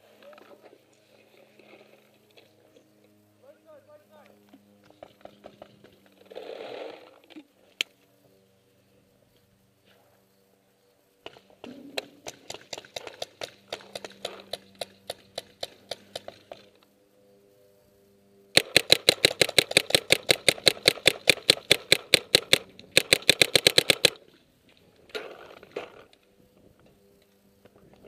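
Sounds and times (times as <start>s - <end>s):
paintball marker firing: 11.2s - 16.7s, 18.6s - 24.2s.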